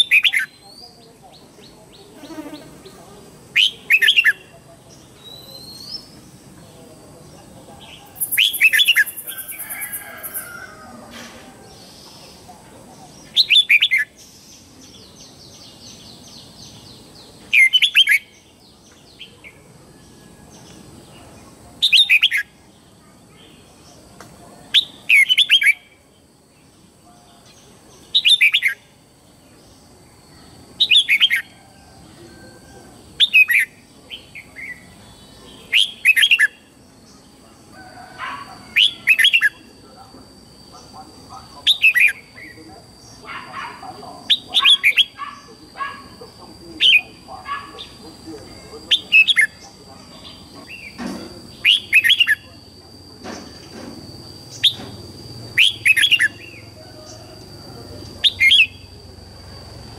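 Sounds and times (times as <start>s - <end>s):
faint bird chatter: 0.0s - 59.9s
bird whistled song: 8.2s - 10.5s, 54.5s - 55.0s, 55.6s - 56.6s.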